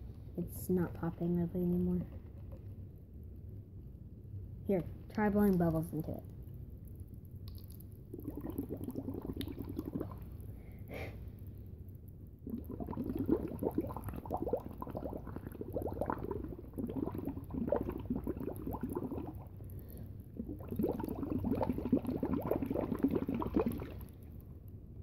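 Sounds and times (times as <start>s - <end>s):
bubbling through a straw: 7.1s - 10.6s, 12.1s - 24.4s.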